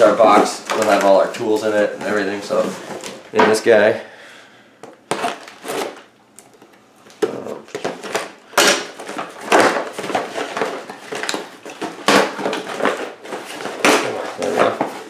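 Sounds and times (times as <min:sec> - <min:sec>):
plastic wrap rustling: 0:00.0 - 0:03.9, 0:05.1 - 0:15.0
cardboard scraping: 0:09.0 - 0:15.0.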